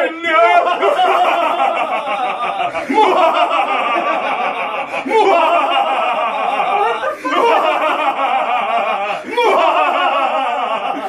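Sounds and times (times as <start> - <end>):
man's loud drawn-out voice: 0.0 - 1.0.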